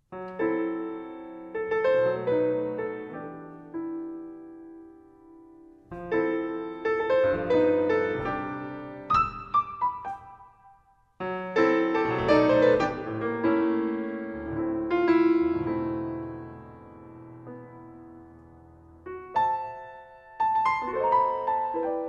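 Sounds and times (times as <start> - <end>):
grand piano playing: 0.1 - 22.0.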